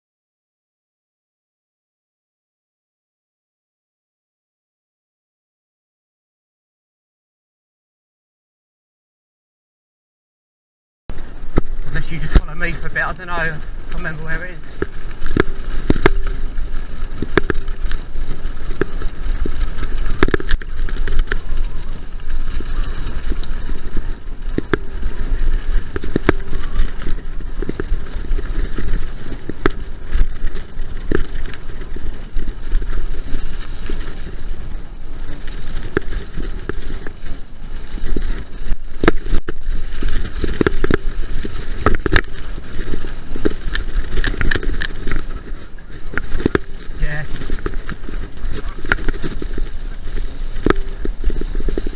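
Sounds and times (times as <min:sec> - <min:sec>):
bike clattering over bumps: 0:11.1 - 0:51.9
bike tyres rumbling: 0:11.1 - 0:51.9
wind buffeting microphone: 0:11.1 - 0:51.9.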